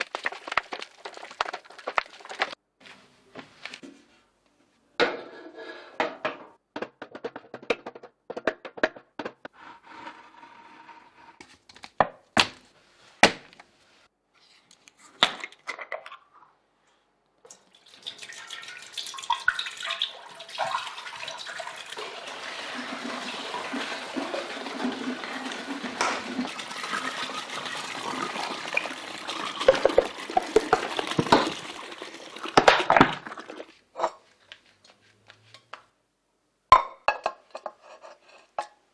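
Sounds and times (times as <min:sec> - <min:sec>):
milk pouring into steel pot: 0:00.0 - 0:02.6, 0:17.5 - 0:33.8
plastic milk jugs knocking: 0:06.1 - 0:09.5, 0:29.5 - 0:31.8.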